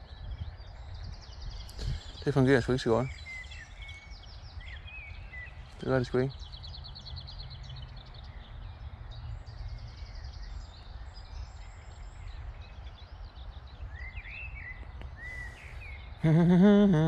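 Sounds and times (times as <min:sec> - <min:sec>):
low wind rumble on microphone: 0:00.0 - 0:16.6
small birds chirping: 0:00.0 - 0:17.0
man humming: 0:16.2 - 0:17.0.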